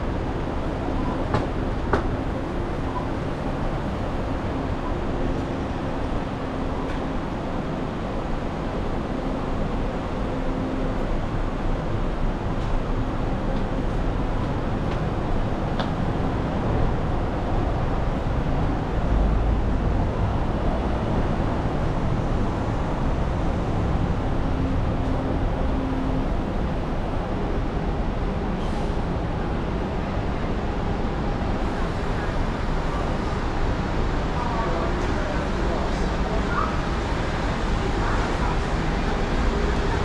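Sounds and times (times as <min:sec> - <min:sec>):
city street traffic rumble: 0:00.0 - 0:40.0.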